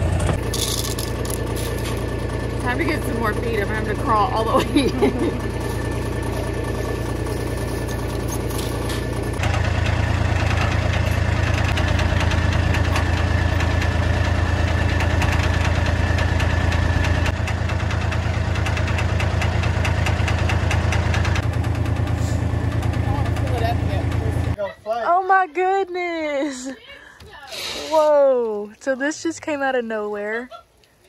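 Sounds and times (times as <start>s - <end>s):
engine idling with knocking pulse: 0.0s - 24.6s.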